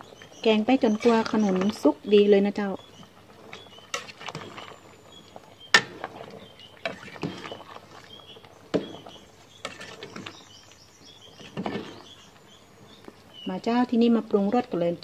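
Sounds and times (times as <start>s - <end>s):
curry simmering: 0.0s - 15.0s
metal ladle scraping a pot: 0.8s - 1.9s, 3.6s - 10.6s, 11.3s - 12.3s.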